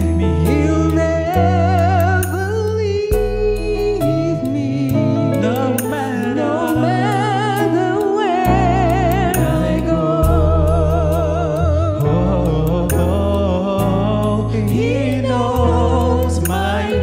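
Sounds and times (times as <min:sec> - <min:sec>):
bass notes: 0:00.0 - 0:17.0
person singing with vibrato: 0:00.0 - 0:17.0
drum and cymbal hits: 0:03.1 - 0:04.2.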